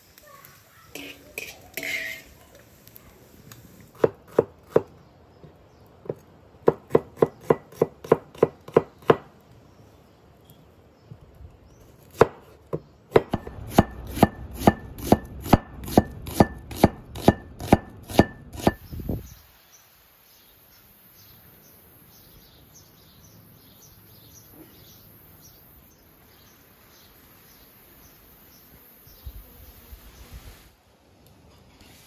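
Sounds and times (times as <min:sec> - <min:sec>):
knife slicing onion on wooden board: 0:03.9 - 0:04.9, 0:06.0 - 0:09.2, 0:12.1 - 0:18.8.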